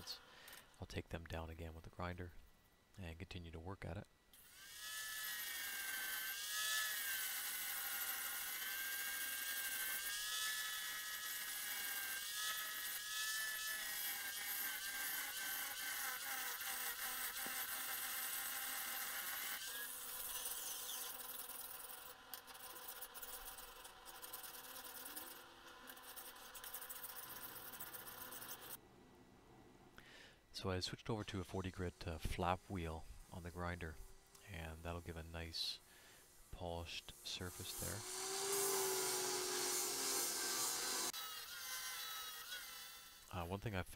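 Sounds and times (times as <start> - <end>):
angle grinder grinding steel: 4.4 - 28.8, 36.5 - 43.6
hand file scraping steel: 5.3 - 28.8, 37.3 - 43.4.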